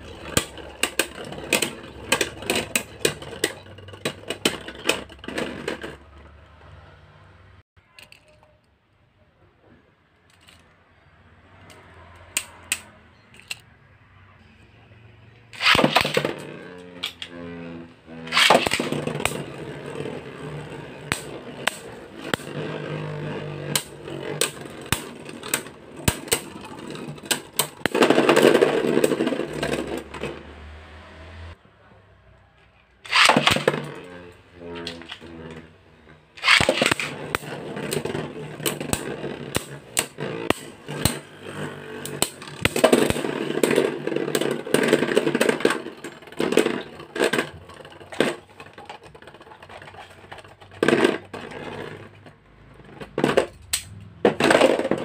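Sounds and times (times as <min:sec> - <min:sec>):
spinning tops whirring and clattering: 0:00.0 - 0:06.5, 0:15.5 - 0:30.7, 0:33.0 - 0:55.0
spinning tops launching: 0:15.5 - 0:30.0, 0:33.0 - 0:35.5, 0:36.4 - 0:48.5.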